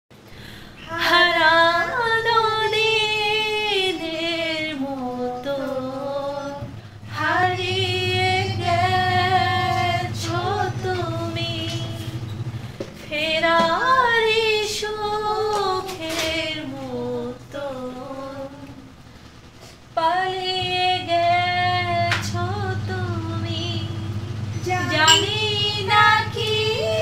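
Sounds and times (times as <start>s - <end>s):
low hum: 0.1s - 27.0s
woman singing: 0.8s - 12.2s, 13.0s - 18.9s, 20.0s - 27.0s.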